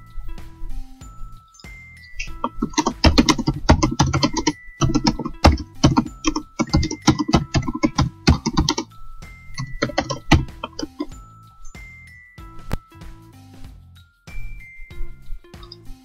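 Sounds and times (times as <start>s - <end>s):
soft tinkling background music: 0.0s - 16.0s
keyboard typing: 2.2s - 8.9s, 9.6s - 11.2s.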